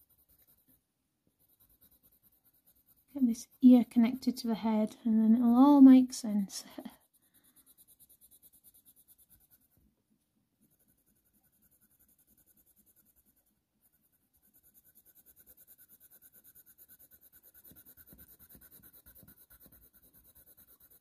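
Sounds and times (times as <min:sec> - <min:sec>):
coloured pencil shading on paper: 0:00.0 - 0:09.9, 0:10.6 - 0:21.0.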